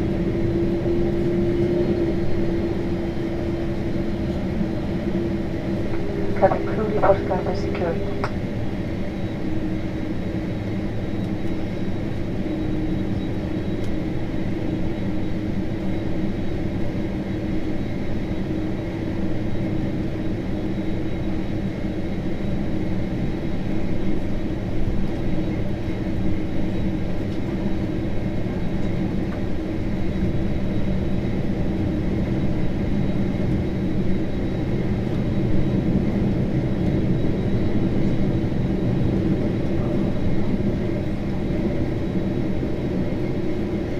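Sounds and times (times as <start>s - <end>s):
jet engine drone: 0.0s - 43.9s
faint high whine: 5.3s - 10.0s.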